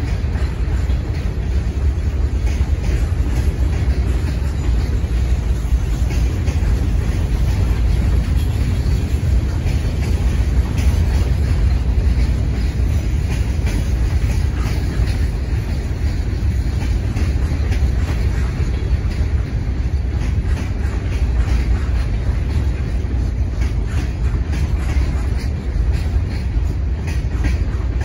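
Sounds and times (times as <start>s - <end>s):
freight train rumbling past: 0.0s - 28.0s
train wheels clicking: 0.0s - 28.0s.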